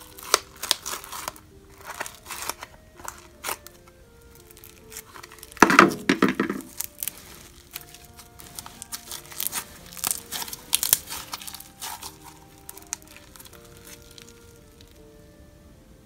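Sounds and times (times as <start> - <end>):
slime crackling and clicking: 0.0 - 6.0, 6.7 - 15.0
plastic tub clattering: 5.2 - 7.2.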